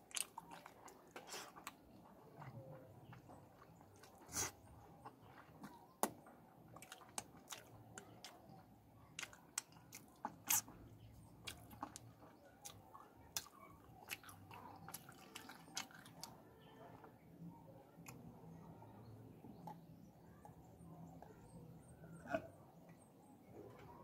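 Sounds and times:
man sucking fingers and chewing: 0:09.2 - 0:10.8.

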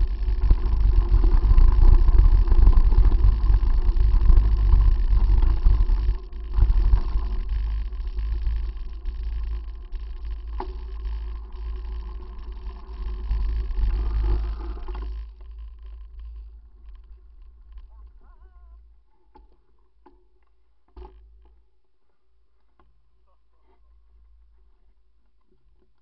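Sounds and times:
wavering tone: 0:00.0 - 0:15.8.

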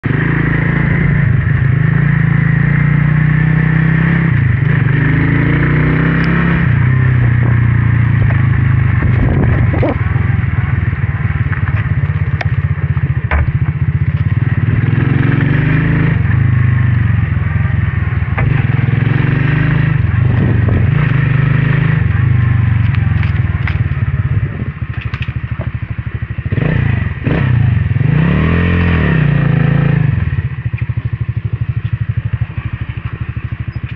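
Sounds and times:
motorcycle engine running: 0:00.0 - 0:33.9.

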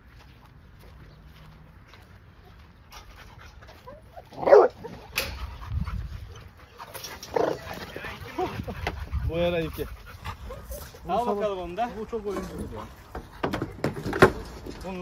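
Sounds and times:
dog barking: 0:04.3 - 0:05.0.

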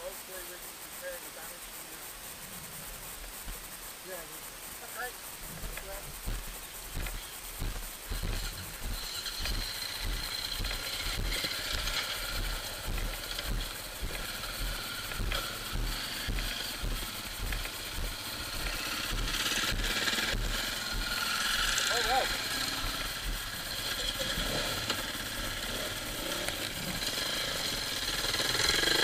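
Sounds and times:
motor vehicle engine running: 0:05.0 - 0:29.0
footsteps on gravel: 0:05.5 - 0:23.5.

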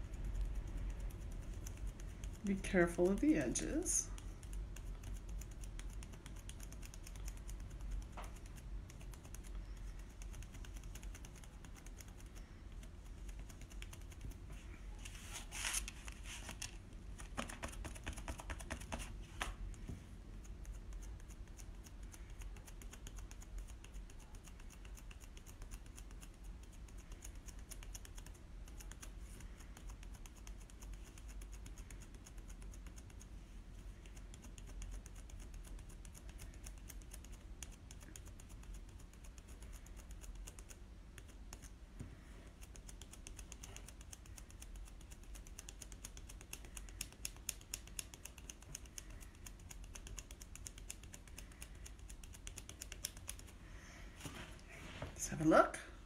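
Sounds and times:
stencil rustling: 0:00.1 - 0:33.0.

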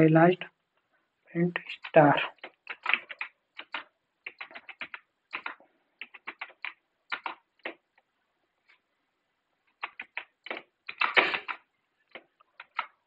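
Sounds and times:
computer keyboard keys clicking: 0:01.6 - 0:07.8, 0:09.8 - 0:13.0.

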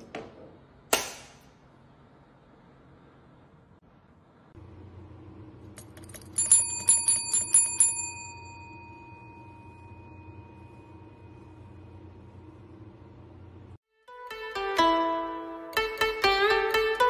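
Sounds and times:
desk bell ringing: 0:05.7 - 0:11.5.

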